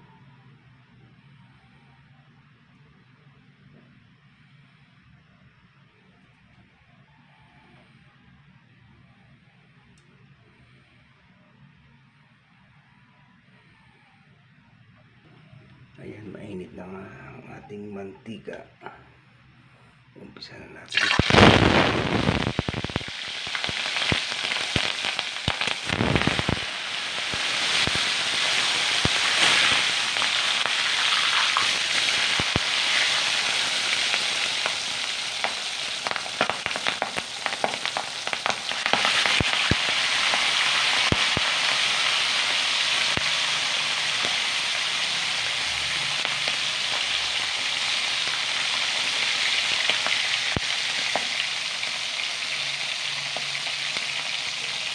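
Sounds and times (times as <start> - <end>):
meat sizzling in hot oil: 20.9 - 54.9.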